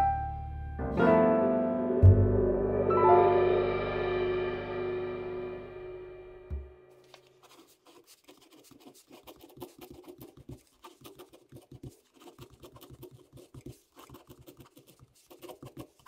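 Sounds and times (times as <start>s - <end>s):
pen scratching on paper: 7.1s - 16.0s.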